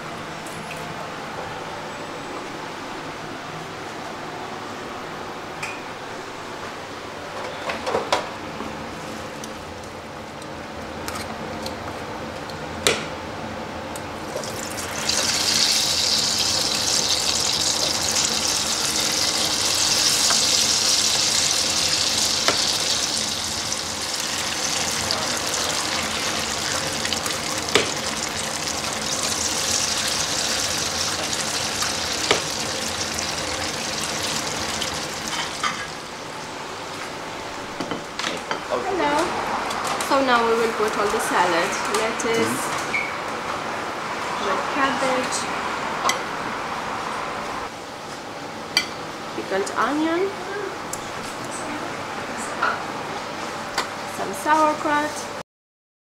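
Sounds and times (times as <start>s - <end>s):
food sizzling in hot oil: 14.3s - 36.2s.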